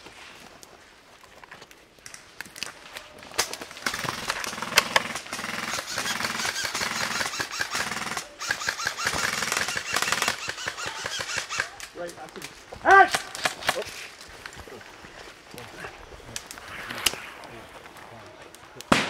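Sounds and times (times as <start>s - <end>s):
airsoft guns firing automatic bursts: 3.6s - 11.8s.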